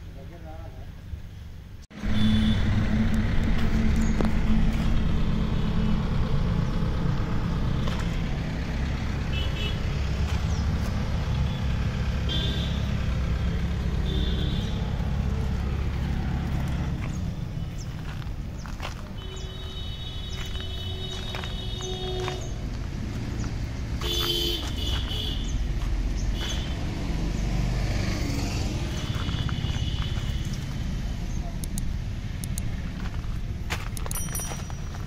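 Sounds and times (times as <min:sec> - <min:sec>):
diesel tractor engine idling: 0:01.9 - 0:27.0.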